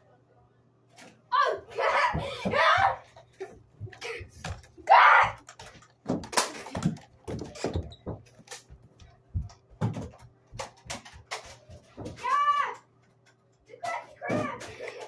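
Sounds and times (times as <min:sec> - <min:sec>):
knocks and thumps on furniture: 0:06.0 - 0:12.3.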